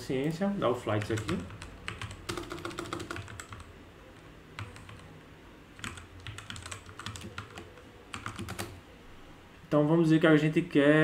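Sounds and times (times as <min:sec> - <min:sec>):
keyboard typing: 0:00.9 - 0:08.8.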